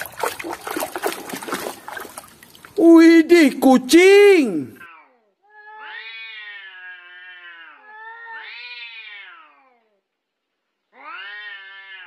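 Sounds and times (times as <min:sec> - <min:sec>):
cats yowling: 0:05.7 - 0:09.5, 0:11.0 - 0:12.0.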